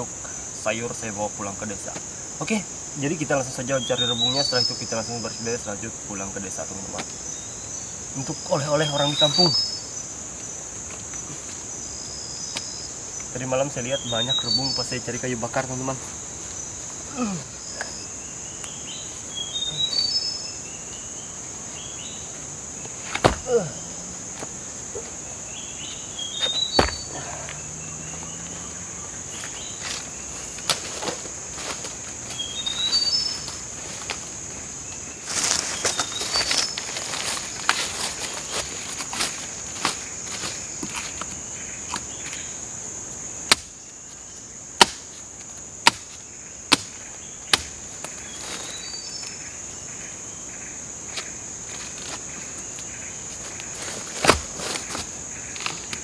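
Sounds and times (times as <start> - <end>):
insects droning: 0.0 - 56.0
sharp knocks: 23.1 - 23.5, 26.8 - 27.1
footsteps in dry leaf litter: 29.3 - 34.4, 35.0 - 41.3, 53.3 - 56.0.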